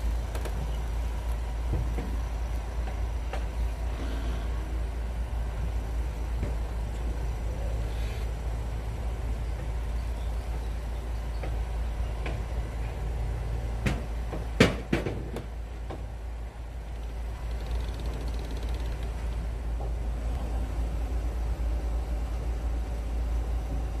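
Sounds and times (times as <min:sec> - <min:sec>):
low harbour rumble: 0:00.0 - 0:24.0
sharp knocks: 0:13.8 - 0:16.0.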